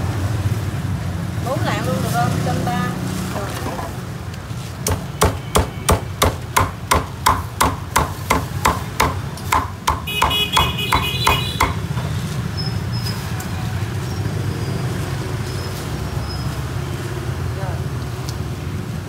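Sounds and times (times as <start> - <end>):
meat cleaver chopping on wooden block: 4.8 - 11.8.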